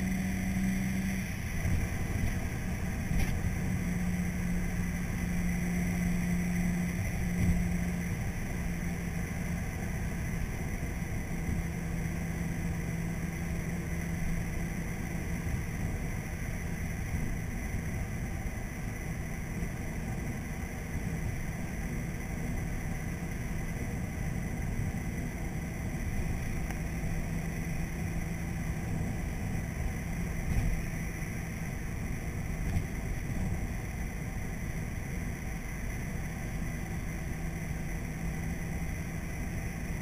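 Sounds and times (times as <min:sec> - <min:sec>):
tyre and road rumble: 0:00.0 - 0:11.7
car engine drone: 0:00.0 - 0:40.0.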